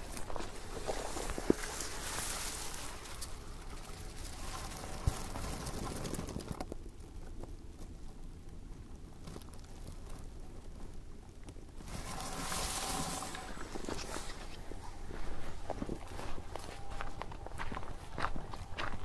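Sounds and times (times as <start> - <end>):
footsteps through undergrowth: 0.0 - 6.6, 11.8 - 19.0
branches and dry grass rustling: 0.0 - 19.0.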